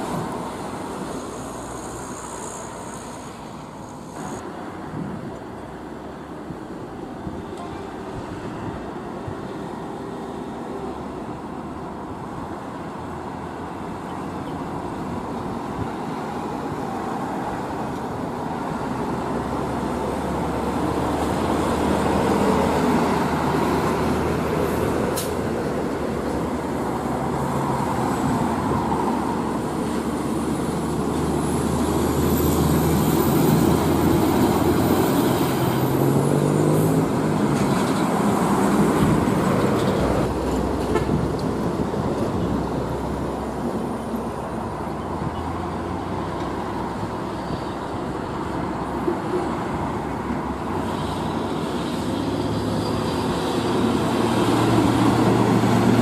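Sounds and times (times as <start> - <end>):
thin high whine: 1.1 - 4.4
truck diesel engine accelerating: 8.6 - 56.0.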